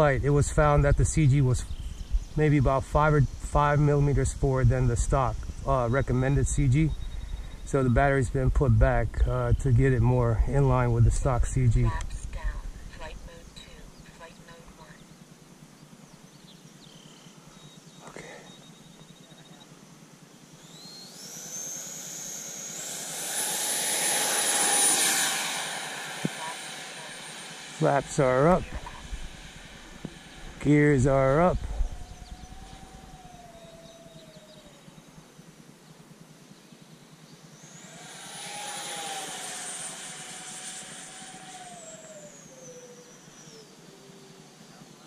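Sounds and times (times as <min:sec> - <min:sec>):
electric fans whining: 0:00.0 - 0:45.0
rushing hiss: 0:21.4 - 0:33.1, 0:37.7 - 0:42.6.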